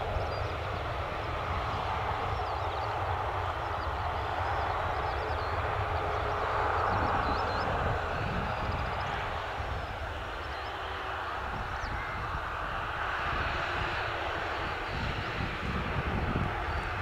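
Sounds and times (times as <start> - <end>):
distant jet engines rushing: 0.0 - 17.0.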